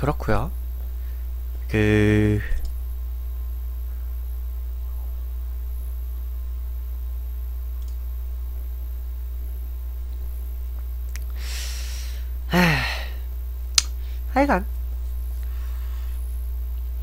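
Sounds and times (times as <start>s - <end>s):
steady low hum: 0.0s - 17.0s
short breath: 11.4s - 13.2s.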